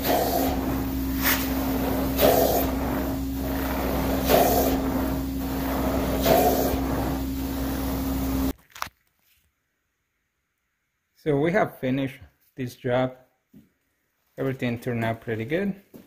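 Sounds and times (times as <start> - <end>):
carpet extraction machine drone: 0.0 - 8.5
hissing surge of spray and suction: 0.0 - 8.5.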